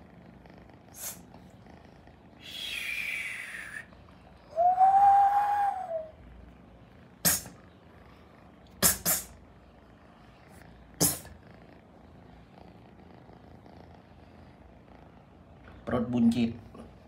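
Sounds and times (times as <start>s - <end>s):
faint steady background noise: 0.0s - 17.0s
kitten breathy sounds: 0.7s - 3.9s, 7.2s - 9.4s, 10.4s - 11.7s.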